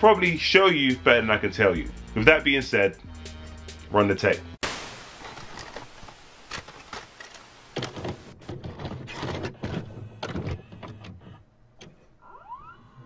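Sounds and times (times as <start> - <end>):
light hiss: 4.6 - 8.4
video cassette recorder clunks and clicks: 6.5 - 12.0.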